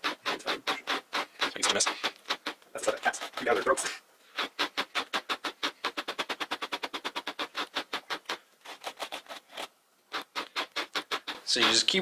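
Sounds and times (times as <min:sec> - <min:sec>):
wire brush raking through yarn: 0:00.0 - 0:02.1, 0:02.7 - 0:03.9.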